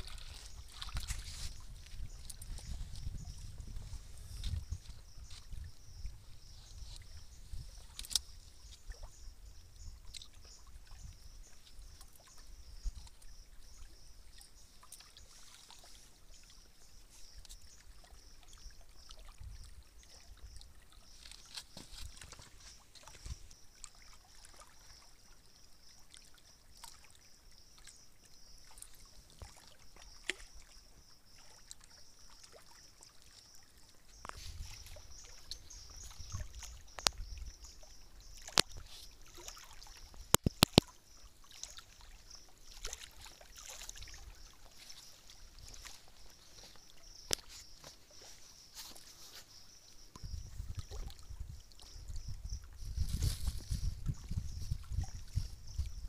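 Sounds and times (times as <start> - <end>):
water lapping against rocks: 0.0 - 56.0
low wind rumble: 1.3 - 7.8
small clicks and taps: 40.3 - 40.9.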